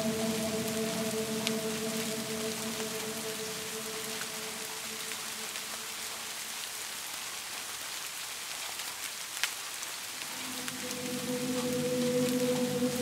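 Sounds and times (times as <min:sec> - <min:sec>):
water drip: 0:00.0 - 0:07.2, 0:10.1 - 0:13.0
steady rain: 0:00.0 - 0:13.0.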